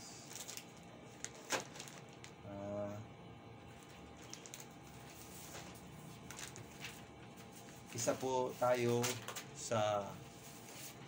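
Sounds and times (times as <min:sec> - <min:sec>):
plastic pouch crinkling: 0:00.3 - 0:02.4, 0:03.9 - 0:05.1, 0:06.2 - 0:06.9.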